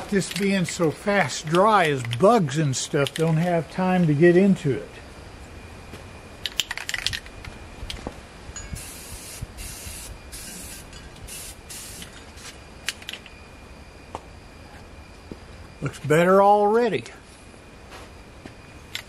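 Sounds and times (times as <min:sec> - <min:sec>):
paint spray hiss bursts: 0:08.8 - 0:12.5.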